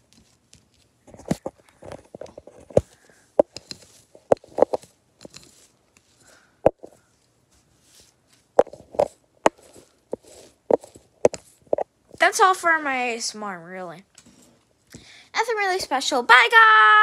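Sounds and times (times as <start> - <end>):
scratchy rustling: 0.0 - 12.7.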